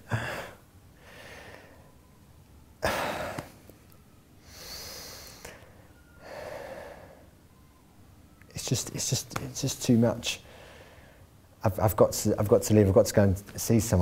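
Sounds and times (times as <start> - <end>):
man sighing: 0.0 - 1.8, 2.8 - 3.6
man breathing heavily: 0.0 - 2.0, 2.8 - 3.7, 4.4 - 7.4, 10.4 - 11.4
sharp intake of breath: 4.4 - 7.4, 10.4 - 11.3.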